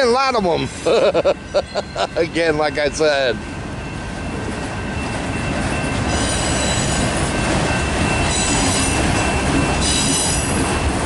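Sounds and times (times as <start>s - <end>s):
train wheels rumbling on rail: 0.0s - 11.0s
metallic wheel squeal: 3.8s - 10.6s.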